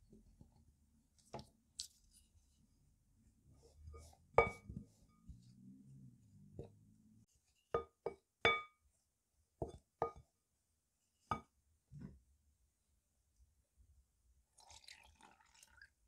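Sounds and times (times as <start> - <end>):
wooden spoon knocking glass bowl: 4.4 - 4.7, 7.8 - 8.8, 9.6 - 10.2.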